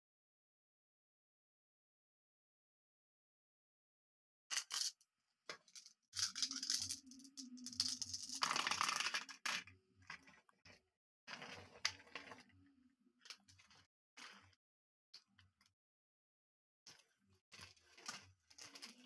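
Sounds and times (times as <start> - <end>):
marbles and plastic toys rattling: 4.5 - 10.4, 17.6 - 19.0.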